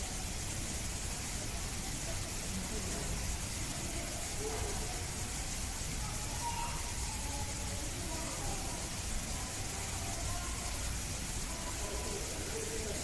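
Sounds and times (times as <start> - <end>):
distant people talking: 0.0 - 13.0
steady background hiss: 0.0 - 13.0.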